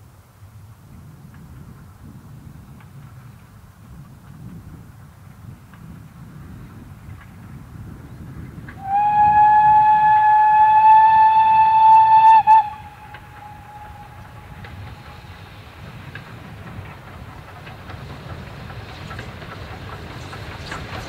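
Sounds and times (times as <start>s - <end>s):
low rumble of approaching train: 0.0s - 21.0s
steam locomotive whistle: 8.8s - 15.2s.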